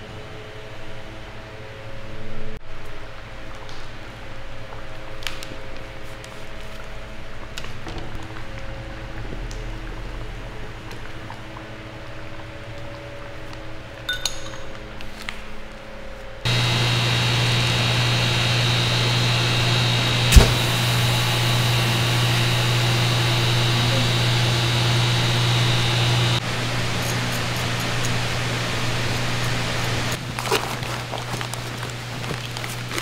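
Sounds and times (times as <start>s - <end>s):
machine hum with high whine: 15.7s - 30.2s
sharp click: 20.3s - 20.9s.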